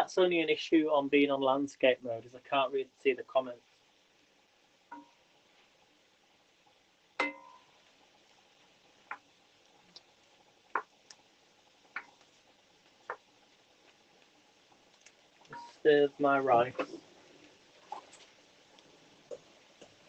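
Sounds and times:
wooden spoon knocking on pan: 7.2s - 7.6s.

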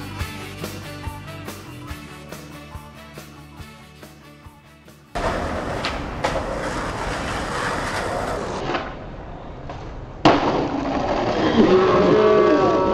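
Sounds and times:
skateboard wheels rolling on concrete: 5.1s - 12.9s
skateboard clacks: 5.2s - 8.9s
loud crack: 9.7s - 11.4s.

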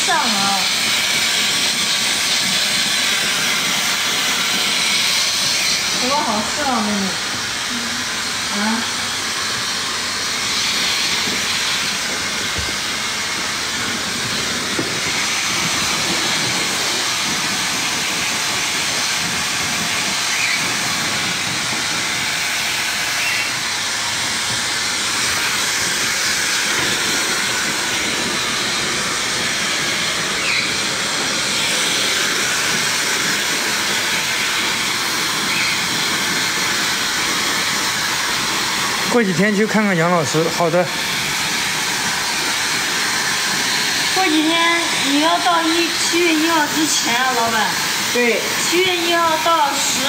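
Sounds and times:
hair dryer blowing: 0.0s - 50.0s.

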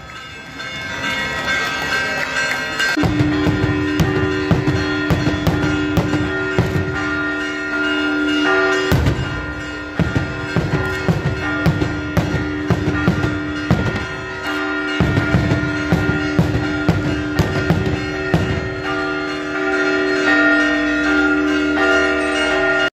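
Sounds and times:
church bells ringing: 0.0s - 22.9s
fireworks banging: 2.8s - 19.3s.

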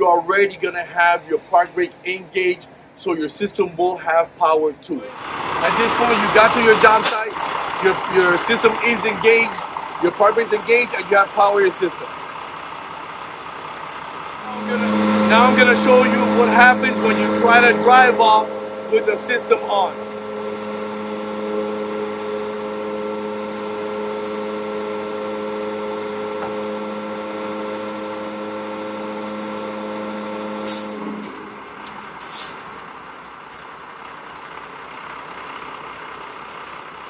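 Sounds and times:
air brake hiss: 30.6s - 32.6s.

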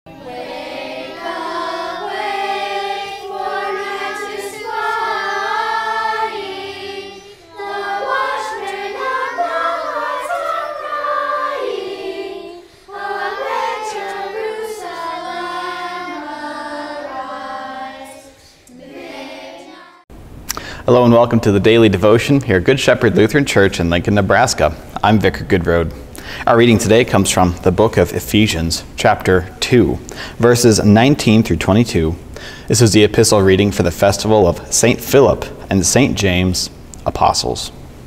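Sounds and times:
choir singing: 0.1s - 20.1s.

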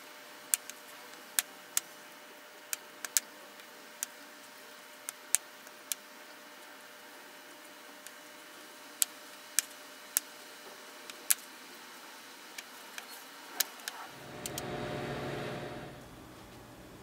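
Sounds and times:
low rumbling hum: 14.2s - 16.2s.

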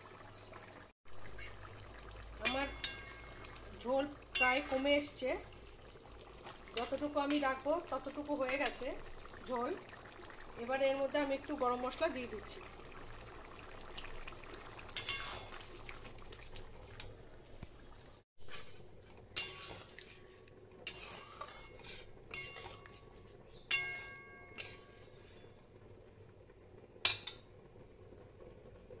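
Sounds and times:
spatula clinking on metal pan: 2.4s - 3.6s, 4.3s - 4.9s, 15.0s - 15.6s, 19.4s - 19.8s, 22.3s - 23.0s, 23.7s - 25.1s.

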